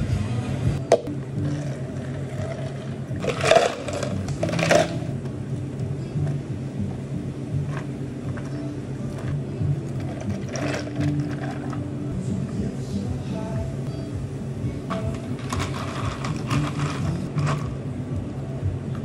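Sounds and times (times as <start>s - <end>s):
steady low hum: 0.0s - 19.0s
soda pouring over ice: 2.3s - 5.0s, 10.0s - 11.8s
ice cubes clattering into cups: 3.2s - 5.0s, 10.0s - 11.8s, 14.9s - 17.6s.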